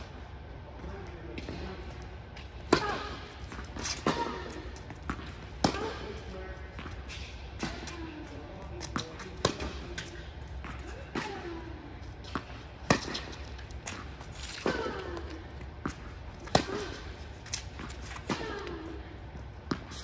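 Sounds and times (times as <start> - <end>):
tennis ball bouncing on court: 1.1 - 20.0
tennis ball hit by racket: 2.6 - 7.0, 8.8 - 11.6, 12.2 - 18.8.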